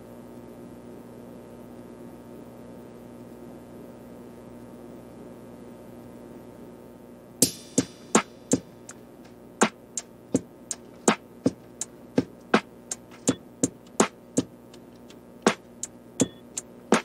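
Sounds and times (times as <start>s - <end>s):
electronic beat: 7.4s - 17.0s.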